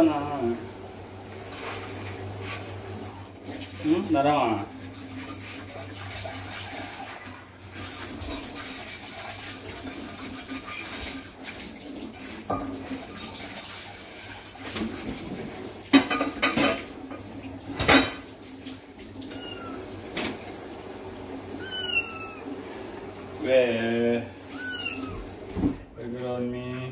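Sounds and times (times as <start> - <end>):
running water hiss: 0.0 - 25.8
dishes and cutlery clattering: 15.9 - 18.3
kitten mewing: 19.3 - 19.9, 21.5 - 22.6, 24.4 - 25.3.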